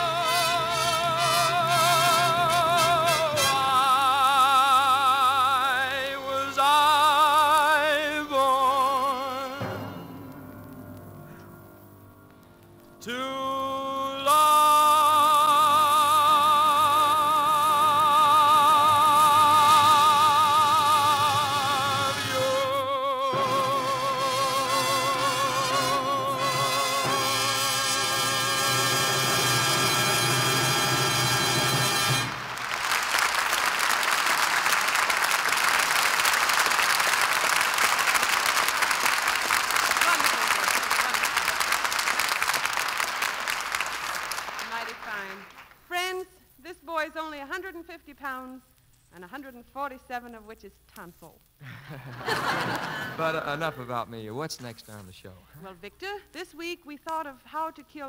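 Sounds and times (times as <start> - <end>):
orchestra playing: 0.0 - 4.5, 15.6 - 33.1
person singing with vibrato: 0.0 - 10.2, 12.9 - 29.0
studio audience applauding: 32.1 - 45.9.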